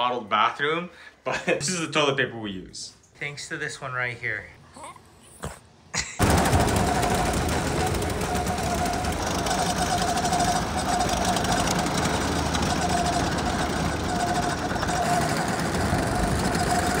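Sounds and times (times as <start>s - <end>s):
go-karts motor drone: 6.2s - 17.0s.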